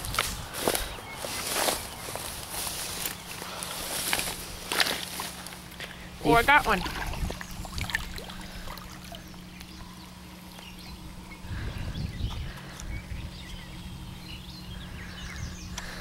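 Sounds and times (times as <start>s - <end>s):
wind rumble: 0.0s - 3.0s, 6.7s - 9.1s, 10.8s - 16.0s
steady low hum: 0.0s - 16.0s.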